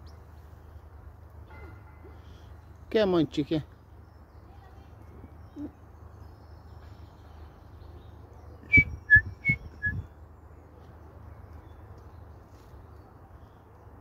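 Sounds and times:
person whistling: 0:08.7 - 0:10.0.

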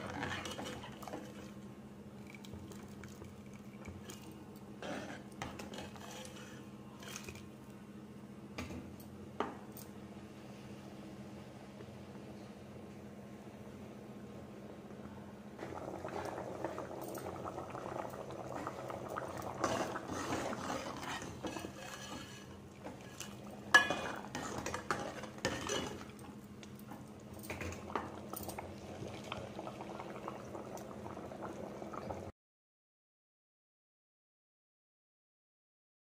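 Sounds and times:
curry bubbling in a pot: 0:00.0 - 0:07.1, 0:15.6 - 0:32.3.

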